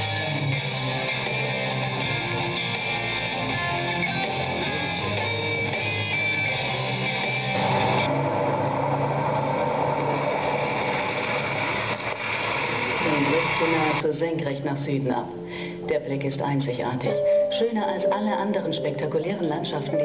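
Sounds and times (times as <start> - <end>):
soundtrack music with electric guitar: 0.0 - 14.1.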